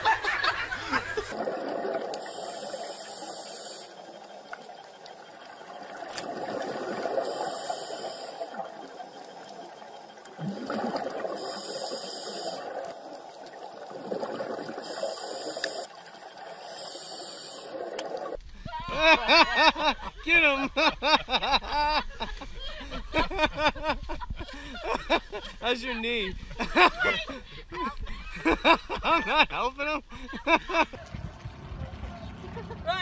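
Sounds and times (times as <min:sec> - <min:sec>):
steady underwater noise: 0:00.0 - 0:32.4
exhaled bubbles rushing: 0:01.3 - 0:02.9, 0:05.5 - 0:07.6, 0:10.2 - 0:15.3.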